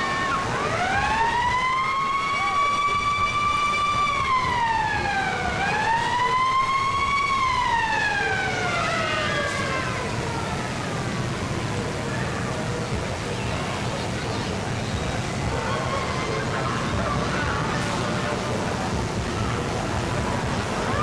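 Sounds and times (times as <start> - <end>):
siren wailing: 0.0 - 11.7.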